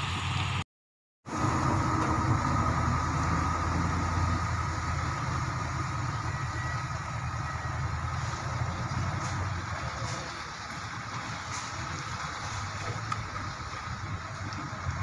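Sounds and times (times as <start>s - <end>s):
truck engines rumbling: 0.0s - 0.6s, 1.3s - 15.0s.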